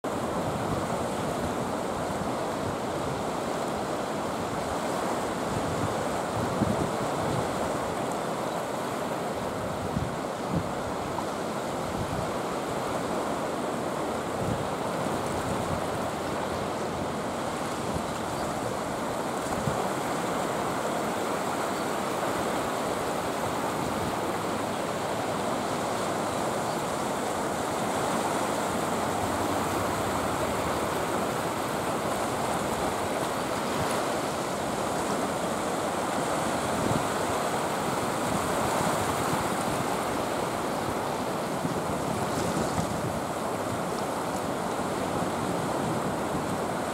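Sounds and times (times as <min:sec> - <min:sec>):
sea waves breaking on rocks: 0:00.1 - 0:46.9.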